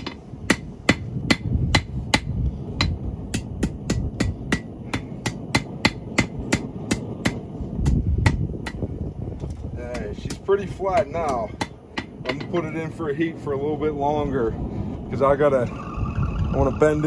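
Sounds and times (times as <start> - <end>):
hammer striking steel on anvil: 0.0 - 8.9, 9.9 - 12.7.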